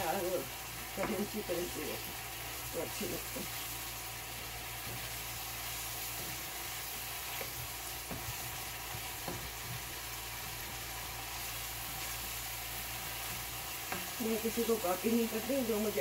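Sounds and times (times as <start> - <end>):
spices sizzling in a wok: 0.0 - 16.0
spatula scraping and tapping pan: 4.7 - 10.9, 13.0 - 14.2.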